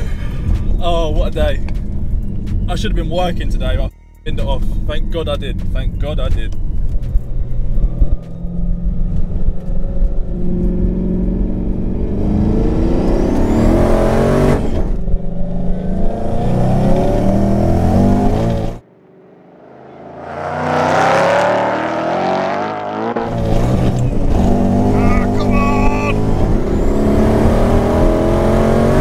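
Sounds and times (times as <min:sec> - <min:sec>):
racing car engines trackside: 0:00.0 - 0:29.0
car engine at full throttle: 0:06.4 - 0:29.0.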